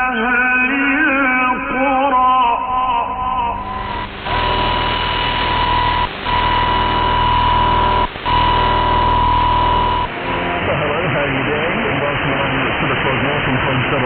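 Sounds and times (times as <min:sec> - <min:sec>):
static hiss: 0:03.5 - 0:14.0
steady radio tone: 0:03.5 - 0:14.0.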